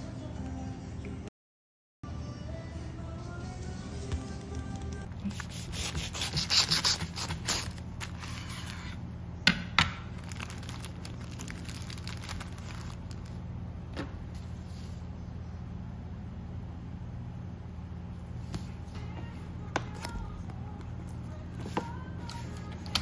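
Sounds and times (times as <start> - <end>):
faint steady hum: 2.0 - 23.0
wrapping paper crinkling: 5.2 - 9.0, 10.2 - 13.4.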